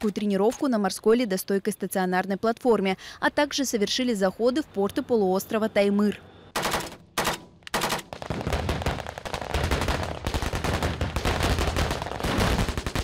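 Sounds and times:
automatic gunfire: 6.6 - 13.0.

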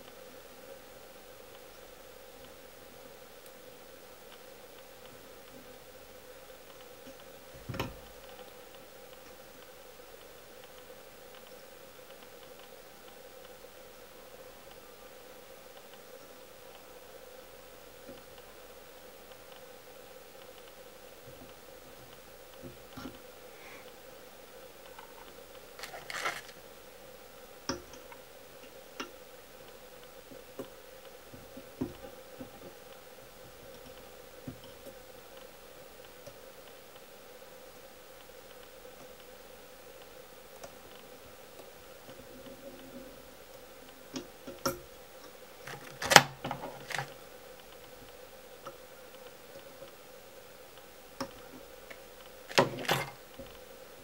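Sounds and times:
faint steady hum: 0.0 - 54.0
rustle and scrape of thread: 25.0 - 26.6.

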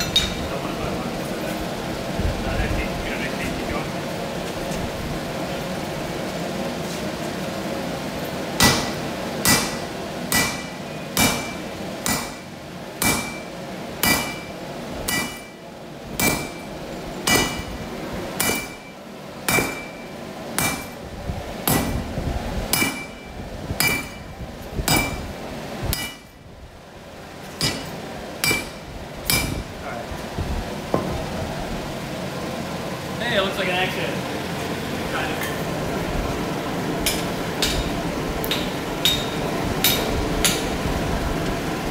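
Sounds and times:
hammer blows on anvil: 8.6 - 15.6, 16.2 - 17.8, 18.4 - 21.0, 21.6 - 22.1, 22.7 - 25.3, 25.9 - 26.4, 27.6 - 29.7, 37.0 - 40.7.

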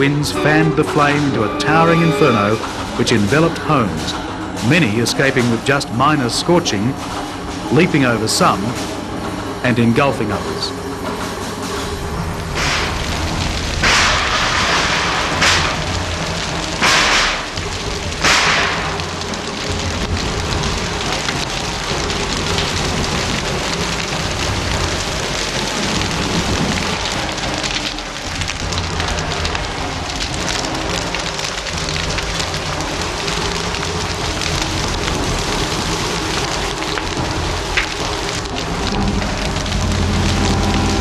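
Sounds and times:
flames crackling: 10.8 - 41.0.

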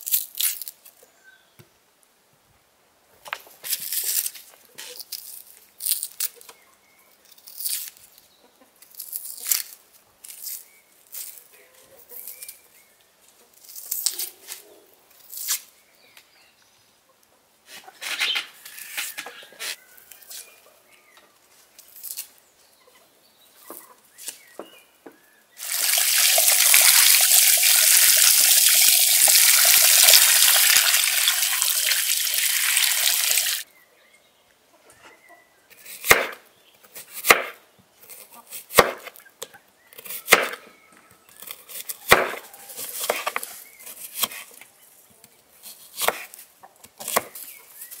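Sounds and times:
onion skins crackling: 0.0 - 1.0, 3.6 - 6.4, 7.2 - 8.2, 8.8 - 11.5, 13.5 - 14.6, 21.6 - 22.4, 25.6 - 33.6.

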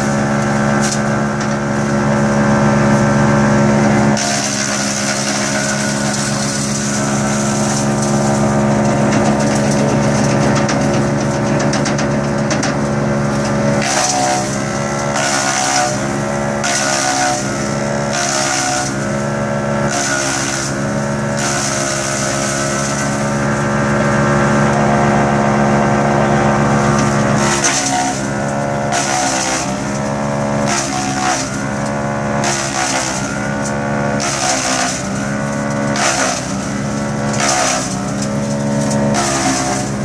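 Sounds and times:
wood chipper engine running: 0.0 - 40.0.

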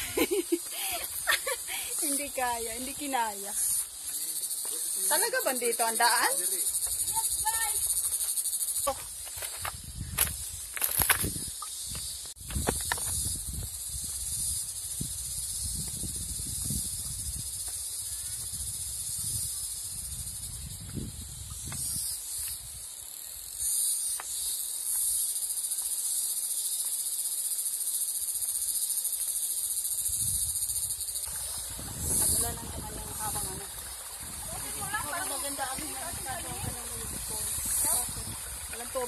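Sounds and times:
insects buzzing: 0.0 - 39.0
footsteps on rocks: 8.1 - 11.4, 12.4 - 13.2.

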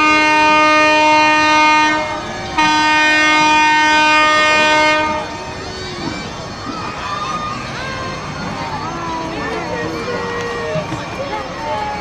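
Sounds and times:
boat horn blasts: 0.0 - 6.7.

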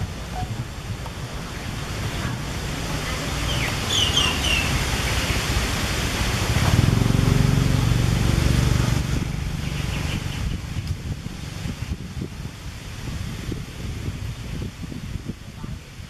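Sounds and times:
wind rumble on microphone: 0.0 - 16.0
motor engine hum: 6.2 - 14.8.

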